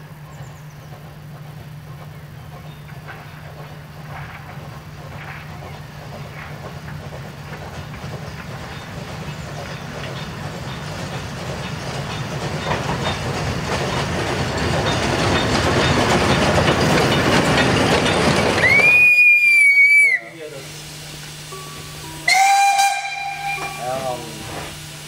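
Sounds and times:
steam locomotive passing: 0:00.0 - 0:25.0.

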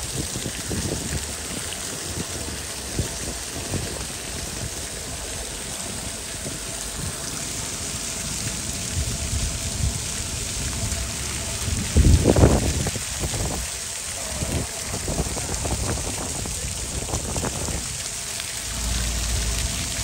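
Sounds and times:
fountain splashing on stone: 0:00.0 - 0:20.0
low rumble: 0:14.4 - 0:20.0.

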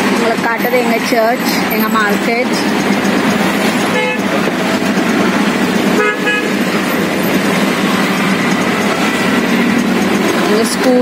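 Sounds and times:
rickshaw engine drone: 0:00.0 - 0:11.0
road noise: 0:00.0 - 0:11.0
vehicle horns tooting: 0:03.8 - 0:04.4, 0:05.9 - 0:09.8.

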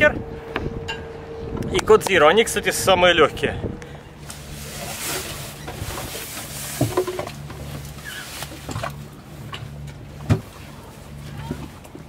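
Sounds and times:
low steady hum: 0:00.0 - 0:12.0
sail bag rustling and knocking: 0:04.3 - 0:09.0.

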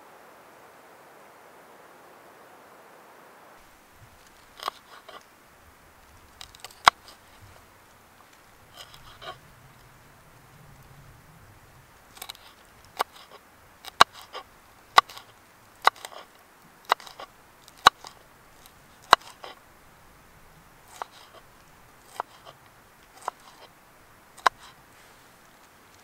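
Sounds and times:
knife chopping on wooden board: 0:12.2 - 0:14.4, 0:15.0 - 0:16.3, 0:16.9 - 0:18.2, 0:19.0 - 0:19.6, 0:20.9 - 0:21.4, 0:22.1 - 0:22.6, 0:23.2 - 0:23.7, 0:24.4 - 0:24.8.

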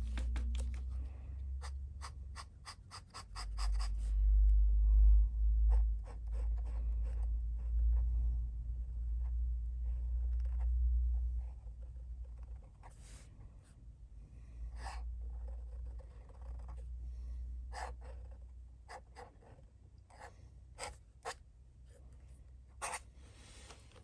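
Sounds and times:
low steady hum: 0:00.0 - 0:24.0
pen nib scratching paper: 0:01.6 - 0:04.0, 0:14.8 - 0:16.8, 0:22.8 - 0:23.0.

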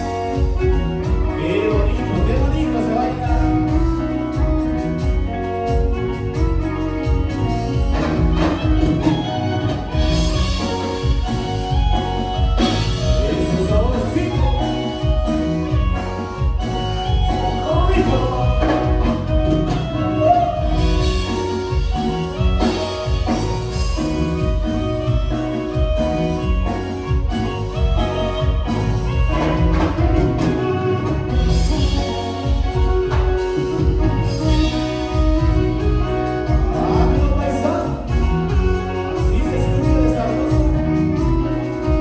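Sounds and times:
person singing: 0:17.2 - 0:21.3, 0:36.2 - 0:41.8.

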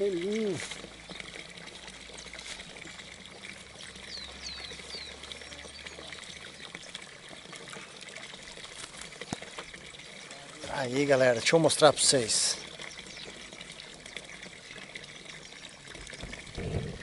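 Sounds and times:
pouring trickling water: 0:00.0 - 0:17.0.

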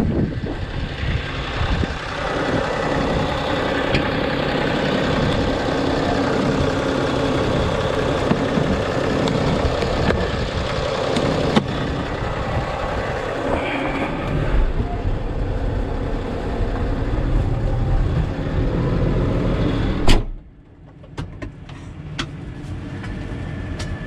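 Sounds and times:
tractor diesel engine idling: 0:00.0 - 0:20.1
cab door opening: 0:19.9 - 0:20.5.

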